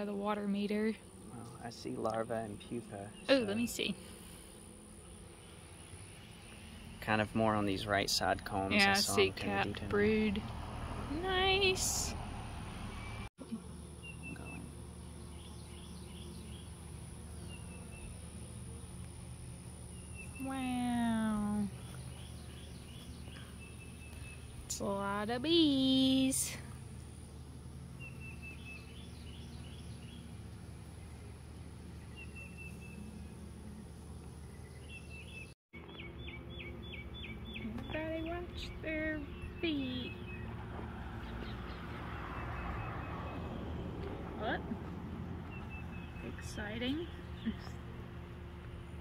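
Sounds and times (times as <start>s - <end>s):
honey bees humming: 0.0s - 49.0s
songbirds chirping: 0.0s - 49.0s
bird chirps: 21.7s - 24.8s, 28.0s - 40.6s.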